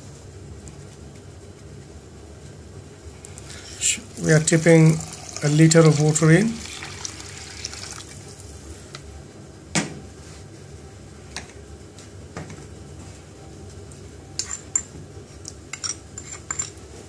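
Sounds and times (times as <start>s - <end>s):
kitchen background hiss: 0.0s - 10.8s
water pouring into a metal pot: 4.4s - 8.4s.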